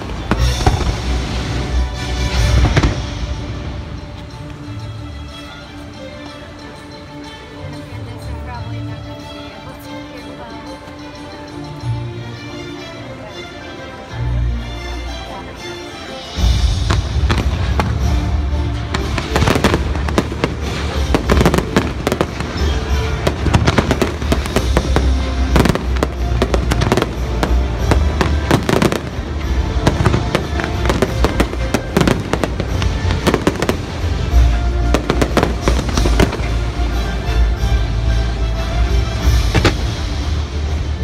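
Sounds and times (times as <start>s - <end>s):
fireworks bursting: 0.0s - 4.8s, 16.4s - 37.8s, 39.1s - 40.9s
music soundtrack: 0.0s - 41.0s.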